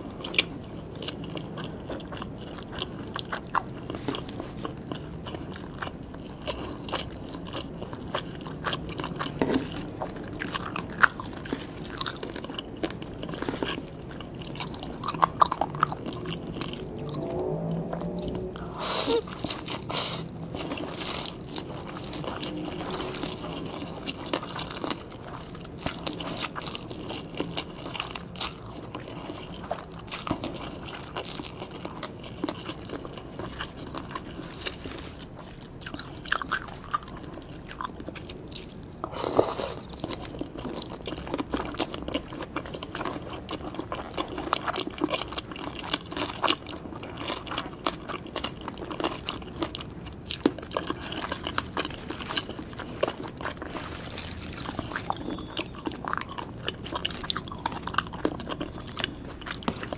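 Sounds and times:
wet chewing: 0.0s - 59.9s
crisp crunching bites: 19.3s - 59.9s.

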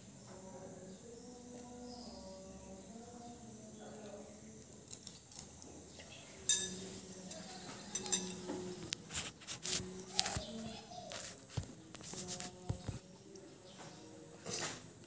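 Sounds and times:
spoon clinking against bowl: 6.5s - 8.5s.

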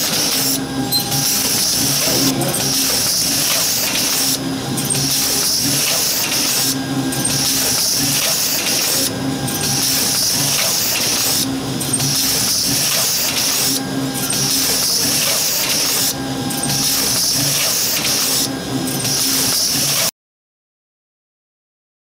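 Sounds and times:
low pulsing hum: 0.7s - 3.1s.

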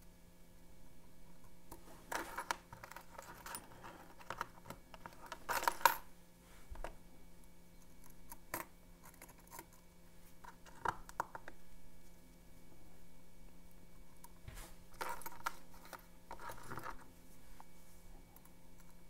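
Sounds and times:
metal lock picks clinking: 2.1s - 6.0s.

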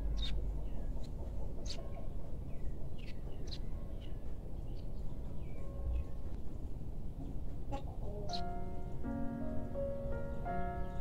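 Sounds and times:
birds chirping: 0.0s - 6.3s, 7.2s - 11.0s
steady low rumble: 0.0s - 7.7s.

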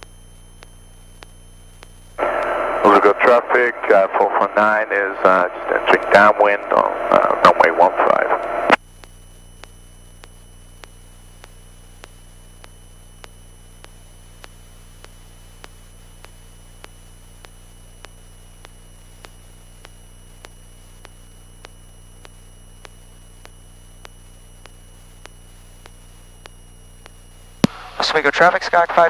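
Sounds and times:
faint regular ticks: 0.0s - 2.0s, 8.8s - 27.7s
aircraft engine drone: 2.2s - 8.8s.

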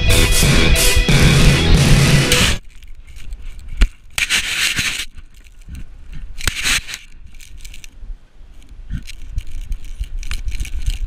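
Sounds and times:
fur and sand rubbing on camera: 2.4s - 11.0s
clicks and rattles: 8.6s - 11.0s.

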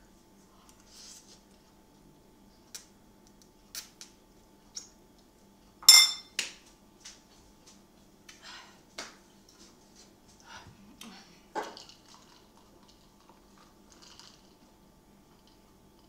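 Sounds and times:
fork clinking in ceramic bowl: 5.8s - 6.3s.

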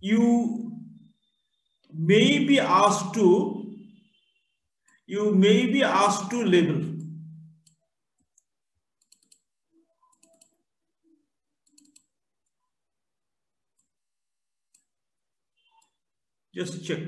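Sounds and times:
computer mouse clicks: 7.0s - 10.6s, 11.6s - 12.6s, 14.7s - 14.9s.

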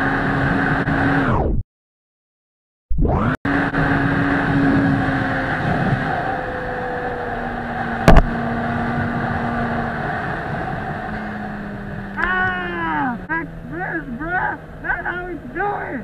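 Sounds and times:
motorcycle engine cruising: 0.0s - 1.2s, 3.5s - 16.0s
wind rushing over microphone: 3.5s - 12.2s
sharp knock: 8.1s - 8.4s.

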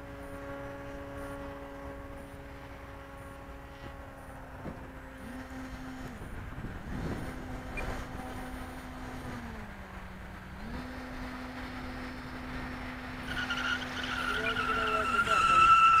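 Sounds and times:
approaching plane whine: 0.0s - 10.2s
model airplane motor droning: 0.0s - 16.0s
wind noise on microphone: 3.8s - 12.9s.

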